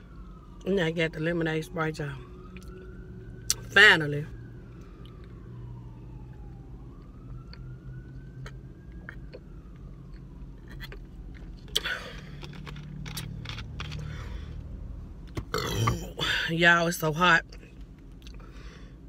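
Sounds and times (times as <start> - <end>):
low steady hum: 0.0 - 19.0
person gulping a drink: 15.5 - 16.1.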